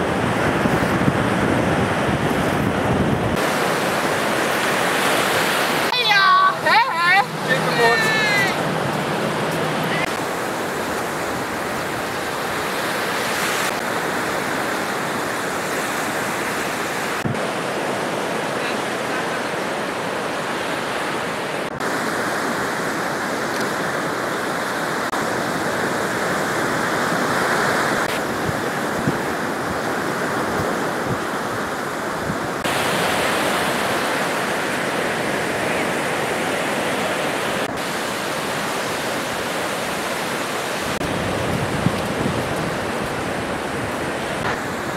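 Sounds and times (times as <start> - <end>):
surf breaking on sandy shore: 0.0 - 44.9.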